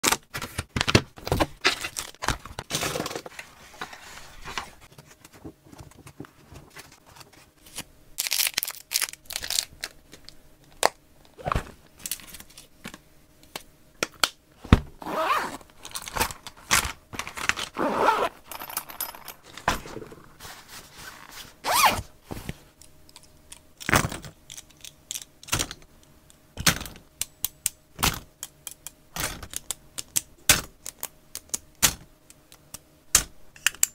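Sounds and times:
plastic packaging rustling: 0:01.3 - 0:10.3
plastic boxes and pens clicking: 0:26.6 - 0:33.9.

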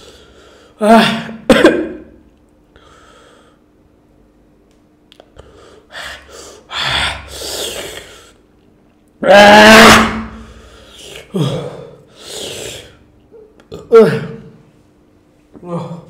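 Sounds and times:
man coughing and gasping: 0:01.0 - 0:02.2.

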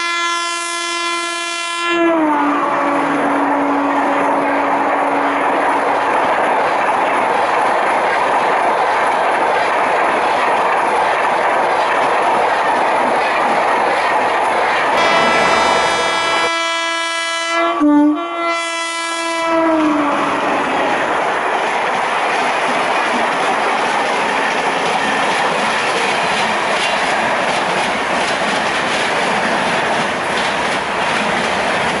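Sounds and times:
locomotive horn blast: 0:00.0 - 0:05.4, 0:15.0 - 0:20.6.

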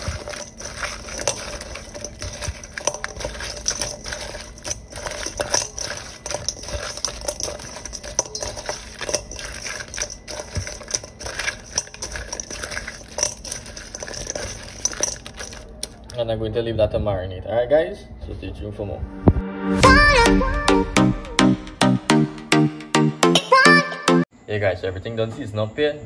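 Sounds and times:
crab shells clattering in steel bowl: 0:00.0 - 0:16.2.

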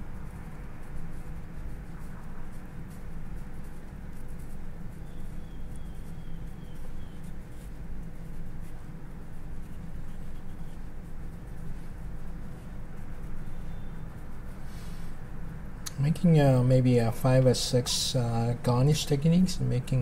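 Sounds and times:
steady low hum: 0:00.0 - 0:20.0
knife scratching cucumber: 0:00.1 - 0:15.0.

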